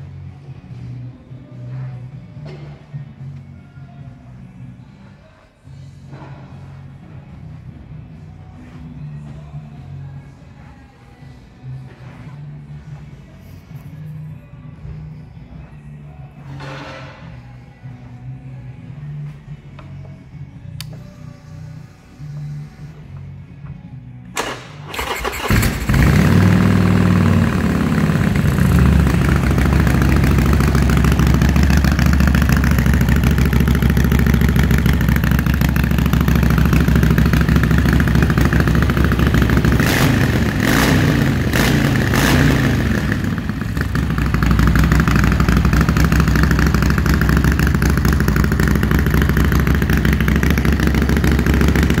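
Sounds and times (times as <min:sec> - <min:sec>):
electric starter cranking: 0:24.4 - 0:27.8
motorcycle engine idling: 0:25.0 - 0:52.0.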